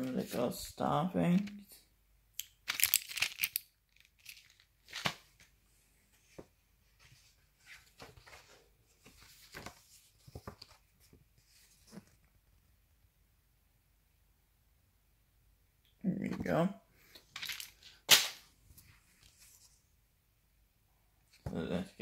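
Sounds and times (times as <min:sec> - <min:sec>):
snack packaging crinkling: 0:02.4 - 0:05.2.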